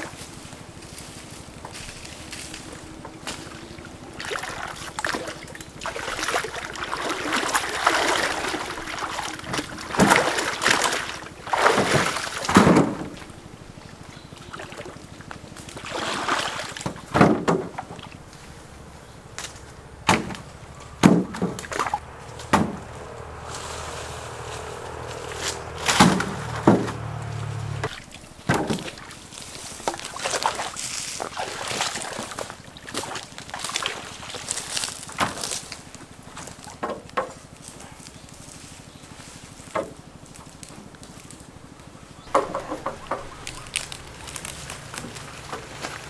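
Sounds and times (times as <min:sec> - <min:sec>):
water sloshing and splashing: 0:03.1 - 0:18.6, 0:20.1 - 0:35.6, 0:42.3 - 0:46.0.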